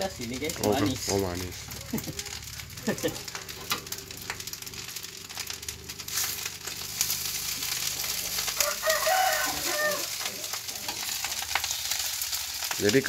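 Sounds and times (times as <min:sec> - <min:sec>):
rice sizzling in a pan: 0:00.0 - 0:13.0
rooster crowing: 0:08.2 - 0:10.3.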